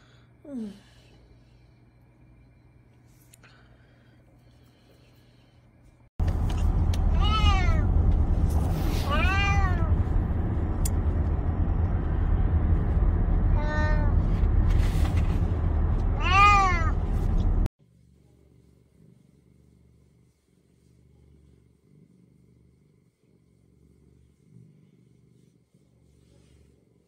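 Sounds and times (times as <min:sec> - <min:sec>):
moving car rumble from inside: 0:06.2 - 0:17.7
cat meowing: 0:07.1 - 0:07.9, 0:09.0 - 0:09.9, 0:16.2 - 0:17.0.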